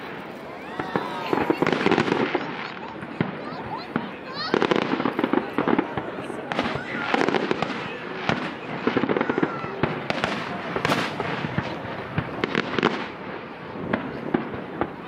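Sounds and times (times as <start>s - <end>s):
fireworks bangs and crackling pops: 0.0s - 15.0s.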